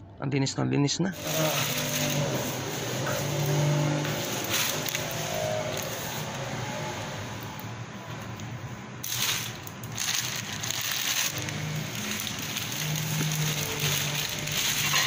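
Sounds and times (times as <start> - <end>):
plastic bag crinkling: 1.2 - 6.3, 9.0 - 15.0.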